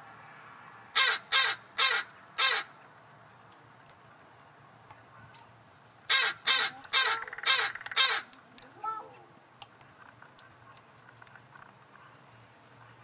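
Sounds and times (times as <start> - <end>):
crows cawing: 1.0 - 2.8, 6.1 - 8.4.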